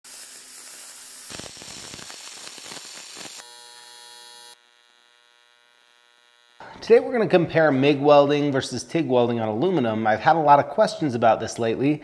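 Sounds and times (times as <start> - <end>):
welding arc electric buzz: 0.0 - 6.8
welding arc hissing and crackling: 0.0 - 6.8.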